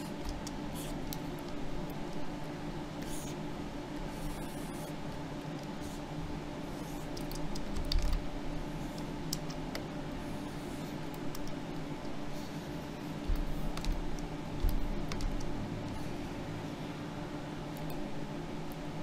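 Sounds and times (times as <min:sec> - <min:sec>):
low hum with held tones: 0:00.0 - 0:19.0
computer keyboard clicks: 0:07.2 - 0:08.2, 0:13.3 - 0:15.5.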